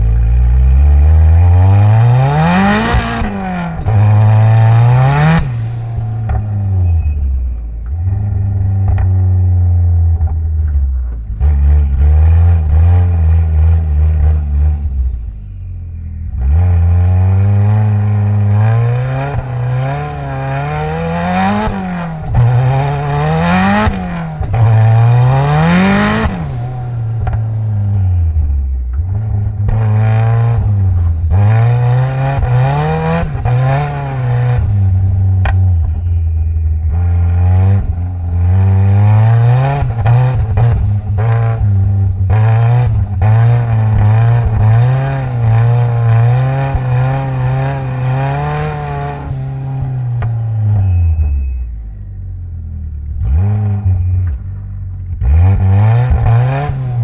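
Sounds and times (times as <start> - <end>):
car engine revving: 0.0 - 57.0.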